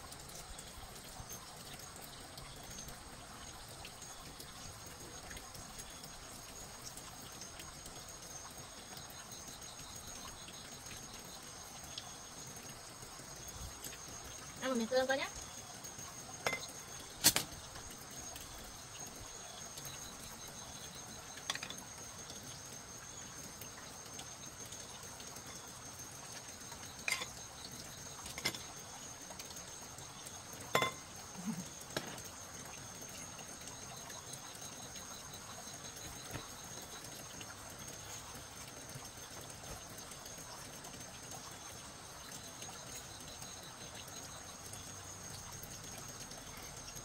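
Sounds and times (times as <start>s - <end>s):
utensils clicking against bowls: 16.4s - 17.6s, 26.8s - 27.5s.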